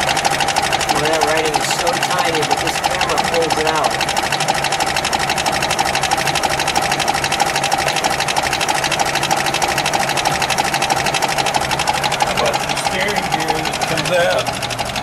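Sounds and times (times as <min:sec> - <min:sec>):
car engine idling with ticking clatter: 0:00.0 - 0:15.0.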